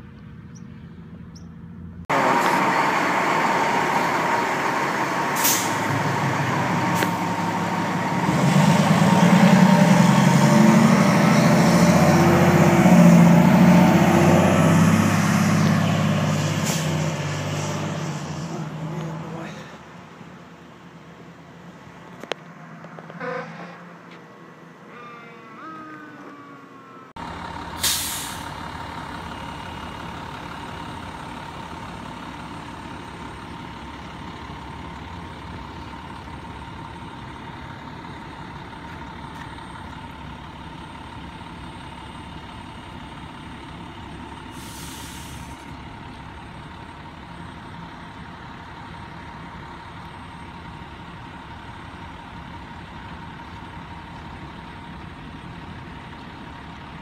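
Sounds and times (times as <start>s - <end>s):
fire engine whine: 0.0s - 57.0s
air brakes hissing: 5.2s - 7.6s, 16.4s - 17.2s, 27.7s - 28.6s, 44.5s - 45.7s.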